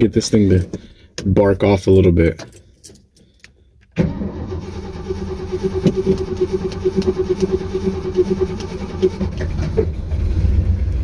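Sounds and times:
engine cranking on starter: 4.0s - 11.0s.

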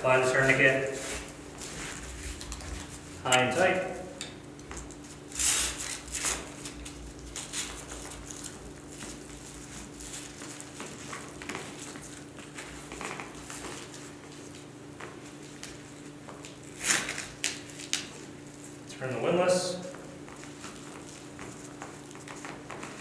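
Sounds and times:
low steady hum: 0.0s - 10.6s.

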